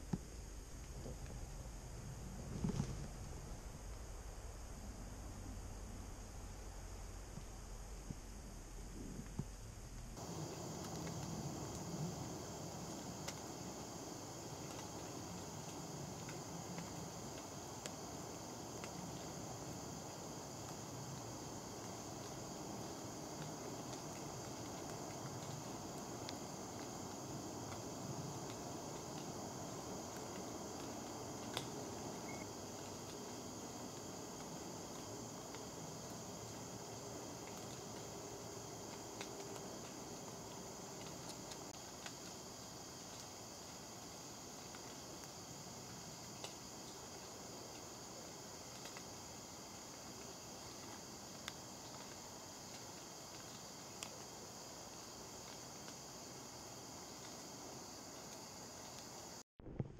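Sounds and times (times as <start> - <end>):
faint insect chorus: 0.0 - 59.4
faint ticks: 9.2 - 48.0, 48.6 - 59.4
faint clicks: 30.1 - 33.2.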